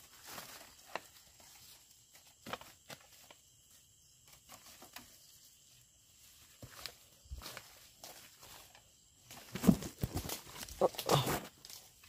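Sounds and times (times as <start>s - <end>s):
footsteps in undergrowth: 0.0s - 12.0s
twigs crunching and snapping: 6.6s - 12.0s.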